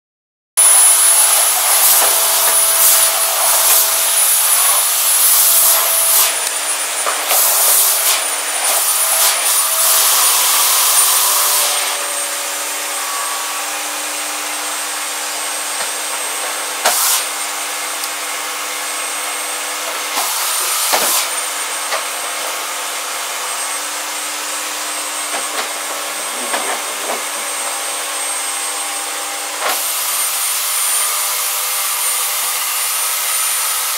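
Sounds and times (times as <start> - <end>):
electric motor whining: 0.6 - 33.9
hissing bursts: 0.9 - 12.0, 16.8 - 17.3.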